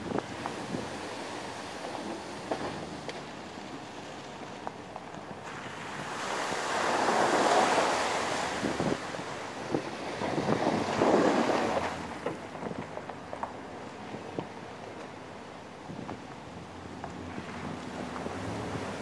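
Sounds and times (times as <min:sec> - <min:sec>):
wind rushing over microphone: 0:00.0 - 0:01.8, 0:05.6 - 0:12.8.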